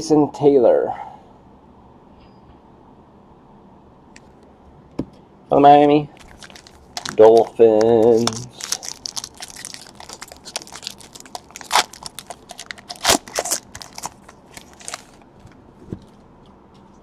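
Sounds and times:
trading cards flipped by hand: 6.2 - 15.2.

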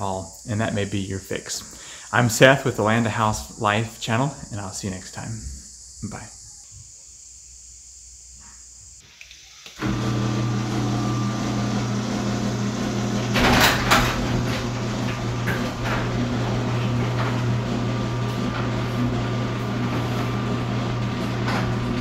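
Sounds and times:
garage door opener motor humming: 9.7 - 22.0
garage door clatter: 9.8 - 22.0.

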